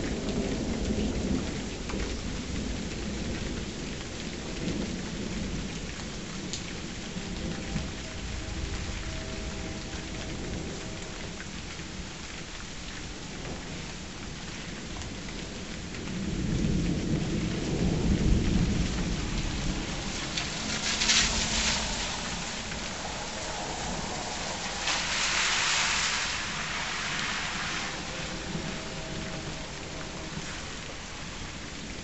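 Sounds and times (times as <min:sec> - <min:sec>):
steady rain falling: 0:00.0 - 0:32.0
thunder rumbling: 0:00.0 - 0:32.0
sharp burst of noise: 0:19.9 - 0:31.2.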